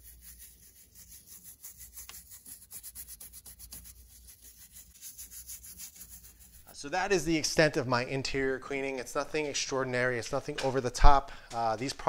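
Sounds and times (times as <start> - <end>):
toothbrush scratching fabric: 0.0 - 6.8.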